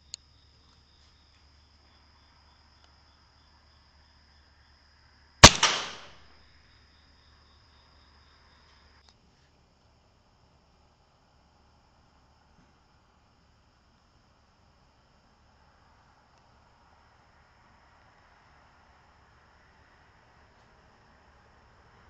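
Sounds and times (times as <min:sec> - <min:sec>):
air rifle shot crack: 0:05.4 - 0:06.2.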